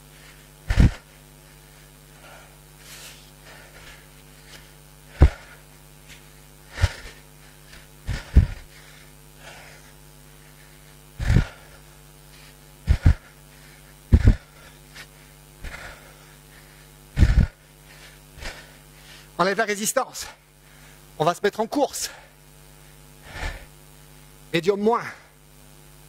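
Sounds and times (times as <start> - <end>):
heavy exhalations into microphone: 0.2 - 19.4.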